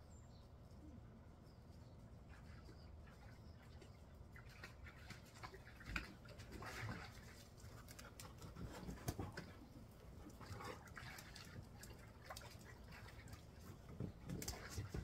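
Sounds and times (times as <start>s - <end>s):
dogs moving about: 6.6s - 15.0s.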